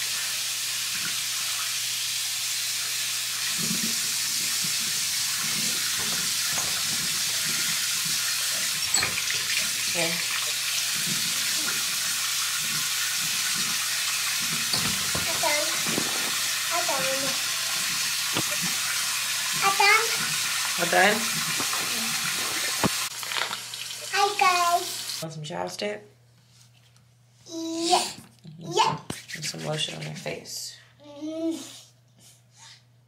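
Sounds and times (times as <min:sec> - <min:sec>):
sink tap running: 0:00.1 - 0:25.2.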